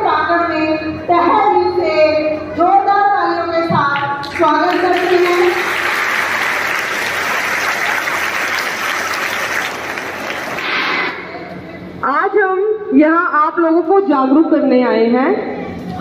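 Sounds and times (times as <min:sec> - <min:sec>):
children clapping: 0:04.2 - 0:11.0.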